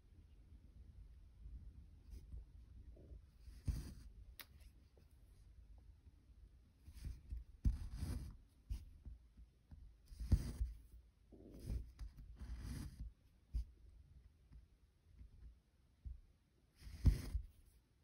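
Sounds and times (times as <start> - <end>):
needle drawn through fabric: 3.5 - 4.1, 10.1 - 10.7.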